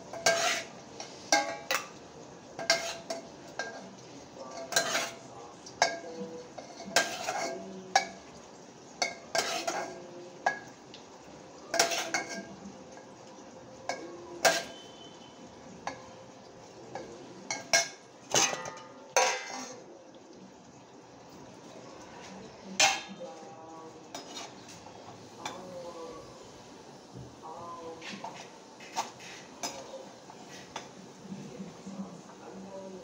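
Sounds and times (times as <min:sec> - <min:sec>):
metal pots and spoon clattering: 0:00.0 - 0:02.0, 0:02.6 - 0:08.2, 0:09.0 - 0:10.7, 0:11.7 - 0:13.1, 0:13.9 - 0:14.9, 0:16.9 - 0:19.9, 0:22.7 - 0:23.2, 0:28.1 - 0:30.9.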